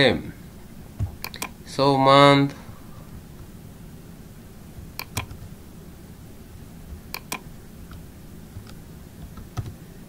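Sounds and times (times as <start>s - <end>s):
keyboard keys tapping: 5.0s - 5.5s, 7.1s - 8.0s, 8.6s - 9.8s.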